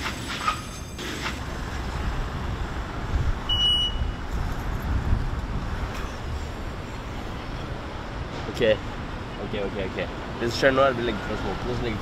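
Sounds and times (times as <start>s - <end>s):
car engine and road noise: 0.0s - 12.0s
short high beep: 3.5s - 4.2s.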